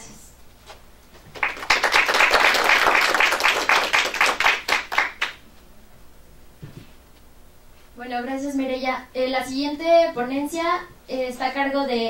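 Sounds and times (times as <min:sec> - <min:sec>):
audience applauding: 0:01.3 - 0:05.4.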